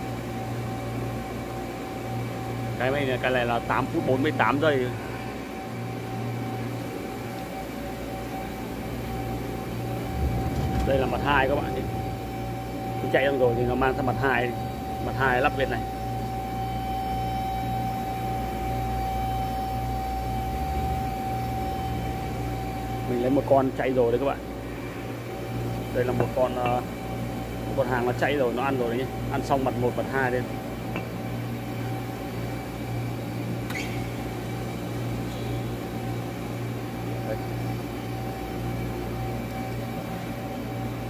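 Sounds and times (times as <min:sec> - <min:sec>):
machinery low hum: 0:02.8 - 0:41.0
lathe high-pitched whine: 0:03.6 - 0:30.6
lathe machine hum: 0:08.6 - 0:16.6.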